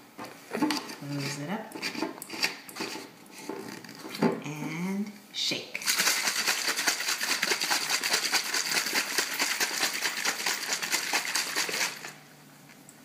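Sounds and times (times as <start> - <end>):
water bottles shaken sloshing: 5.8 - 12.2.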